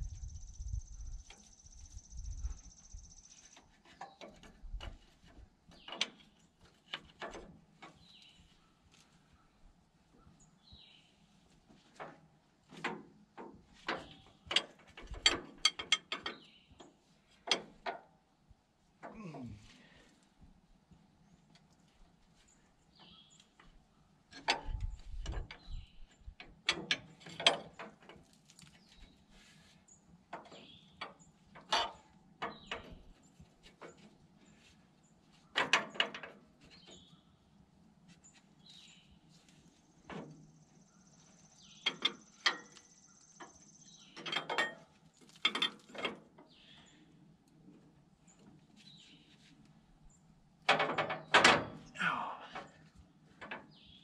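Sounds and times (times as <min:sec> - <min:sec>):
wrenches clinking on metal: 0:44.2 - 0:46.2.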